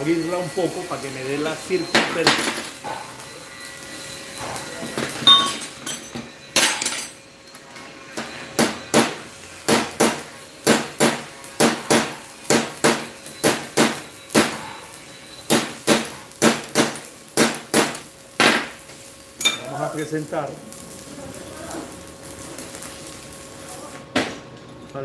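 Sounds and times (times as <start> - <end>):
hammer striking steel: 5.2 - 7.2.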